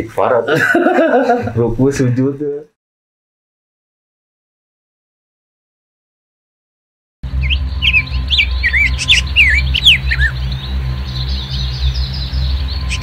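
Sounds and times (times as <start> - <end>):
birds chirping: 7.2 - 13.0
steady low hum: 7.2 - 13.0.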